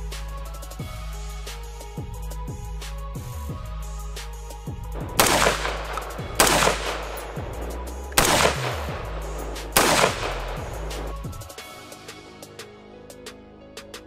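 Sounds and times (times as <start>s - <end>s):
music with steady bass beat: 0.0s - 14.0s
gunshots with short echo: 5.1s - 11.0s.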